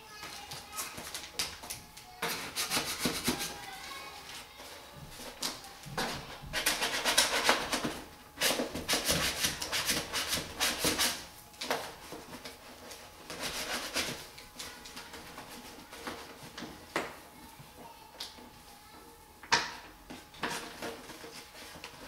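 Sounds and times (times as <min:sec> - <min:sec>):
paper backing crinkling: 0:00.0 - 0:07.9.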